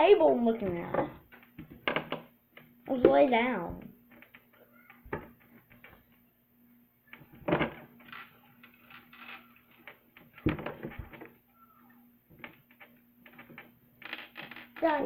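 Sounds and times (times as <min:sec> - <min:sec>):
faint steady hum: 0:00.0 - 0:15.0
handling knocks and rustling: 0:07.1 - 0:11.4.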